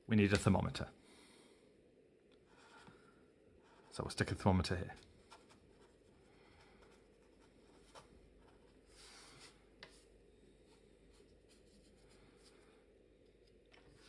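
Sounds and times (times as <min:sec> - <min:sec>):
pen scratching on paper: 0:05.2 - 0:10.0.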